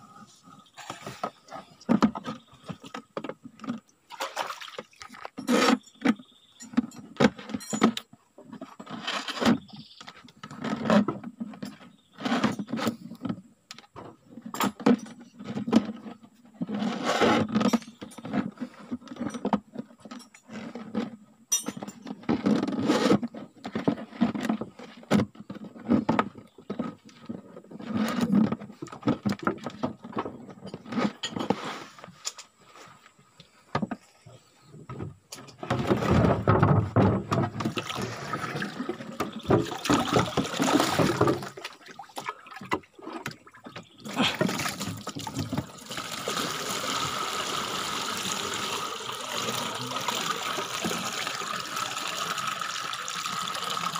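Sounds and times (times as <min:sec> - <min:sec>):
plastic jerrycan scraping and knocking: 0:00.8 - 0:03.8, 0:05.2 - 0:21.2, 0:21.9 - 0:32.2, 0:34.7 - 0:41.8, 0:42.6 - 0:53.9
cord threading through plastic: 0:44.0 - 0:53.9.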